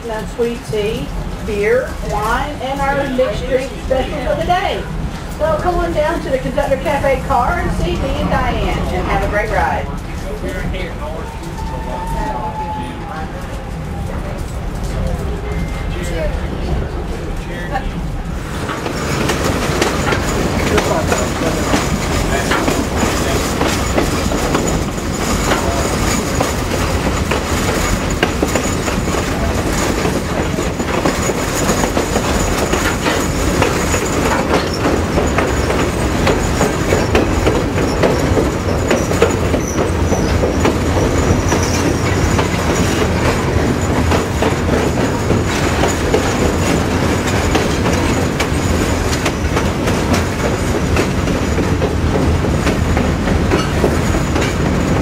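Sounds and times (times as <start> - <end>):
train wheels rumbling on rails: 0.0 - 55.0
faint high wheel squeal: 11.0 - 13.2, 31.2 - 43.0.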